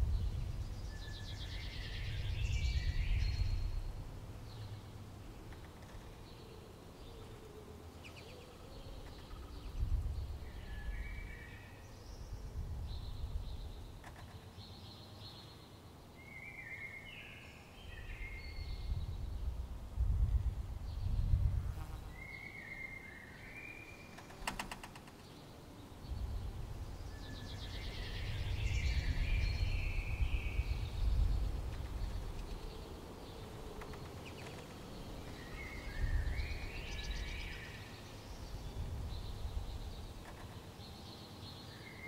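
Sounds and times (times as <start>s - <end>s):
low uneven rumble: 25.9s - 37.6s.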